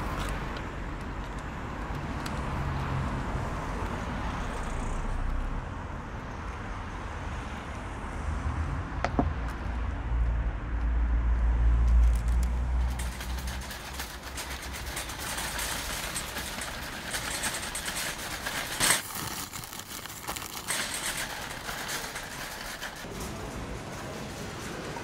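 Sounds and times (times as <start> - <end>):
shopping cart wheels rolling: 12.1 - 25.0
shopping cart clank: 12.8 - 25.0.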